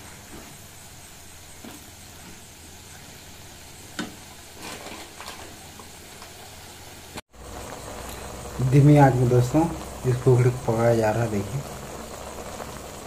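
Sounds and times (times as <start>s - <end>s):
mushrooms sizzling in oil: 0.0s - 13.0s
spatula scraping pan: 4.6s - 5.5s.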